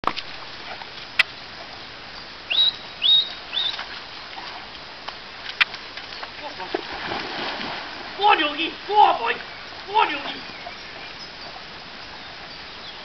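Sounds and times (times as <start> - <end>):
background hiss: 0.1 - 13.0
bird whistled call: 2.5 - 3.8.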